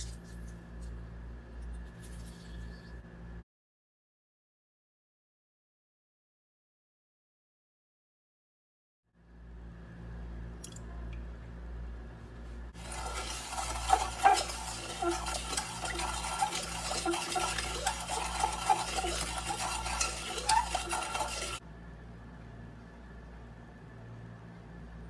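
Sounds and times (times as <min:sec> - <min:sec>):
wooden spoon scraping a pot: 0:12.8 - 0:21.6.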